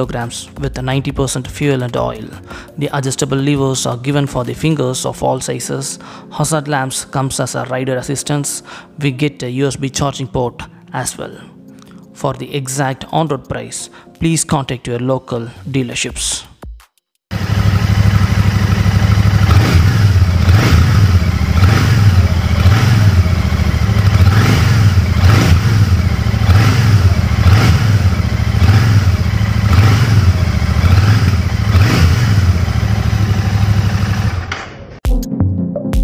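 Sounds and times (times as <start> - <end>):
motorcycle engine running: 17.3 - 34.6.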